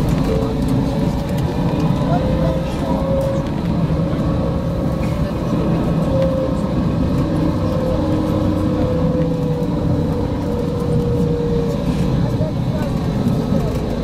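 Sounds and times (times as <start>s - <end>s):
tram rumbling on rails: 0.0s - 14.0s.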